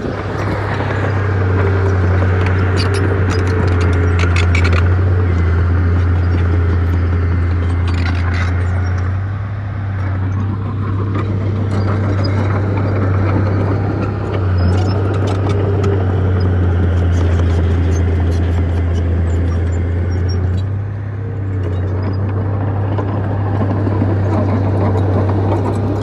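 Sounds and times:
bulldozer diesel engine under load: 0.0 - 26.0
steel tracks and rocks clicking: 0.0 - 26.0.

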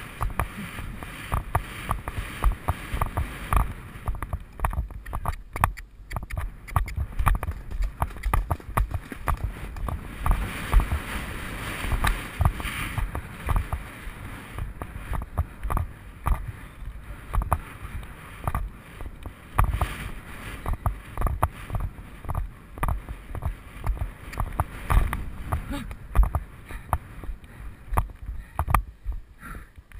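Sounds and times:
horse hoofbeats at a canter: 0.0 - 11.2, 11.8 - 29.3
wind on microphone: 0.0 - 29.9.

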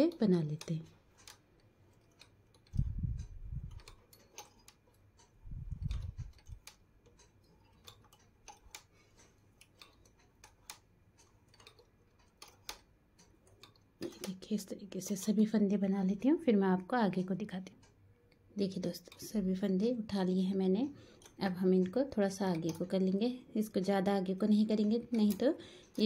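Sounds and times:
knitting machine needles clicking: 0.0 - 26.0
dull low thumps: 2.8 - 3.8, 5.4 - 6.4.

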